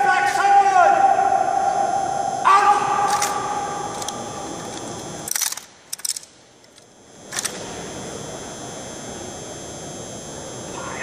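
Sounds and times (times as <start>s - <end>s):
rifles clacking: 3.1s - 6.3s.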